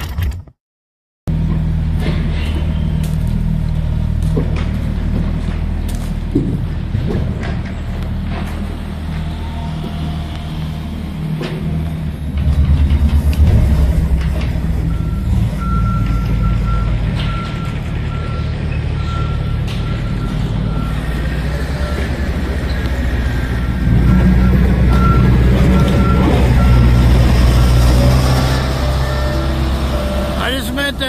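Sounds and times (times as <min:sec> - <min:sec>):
diesel engine running: 0:01.3 - 0:31.0
reversing alarm beeps: 0:14.8 - 0:27.3.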